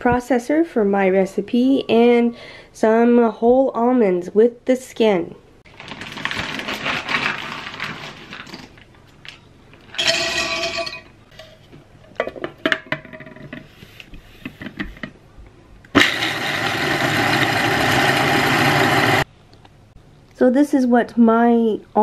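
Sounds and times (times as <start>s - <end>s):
almonds rattling into plastic bowl: 5.7s - 8.8s
food processor whirring: 16.0s - 19.3s.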